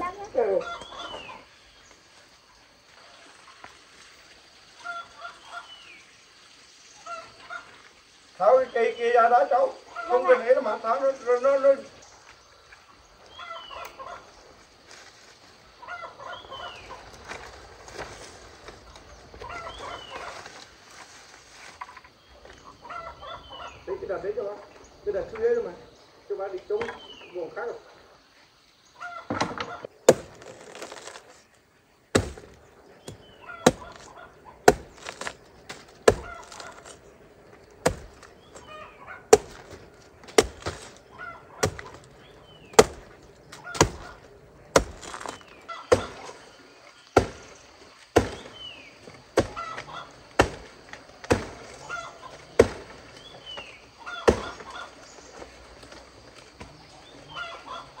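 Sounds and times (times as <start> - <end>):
poultry clucking: 0.0 - 1.5, 4.8 - 5.9, 7.0 - 7.8, 12.8 - 14.4, 15.8 - 17.2, 19.3 - 20.6, 22.5 - 24.0, 29.0 - 30.0, 33.1 - 35.0, 36.0 - 36.9, 37.8 - 44.8, 45.6 - 46.5, 49.2 - 50.4, 51.6 - 52.7, 53.3 - 55.4, 56.7 - 58.0
blade chopping: 30.0 - 31.2, 32.1 - 37.0, 37.8 - 38.3, 39.3 - 41.0, 41.6 - 42.1, 42.7 - 46.4, 47.2 - 48.6, 49.4 - 51.8, 52.6 - 53.0, 54.2 - 54.8.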